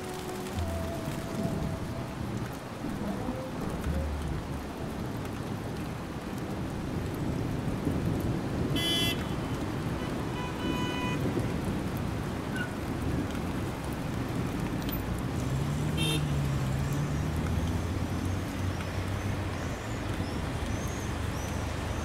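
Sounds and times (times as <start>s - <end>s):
low rumbling noise: 0.0s - 6.0s.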